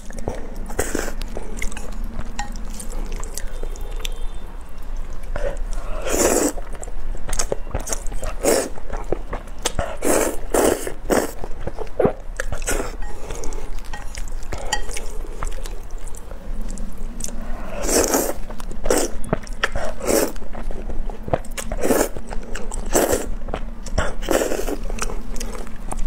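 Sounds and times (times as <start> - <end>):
wet chewing: 0.0 - 26.0
noodles slurped: 5.3 - 6.7.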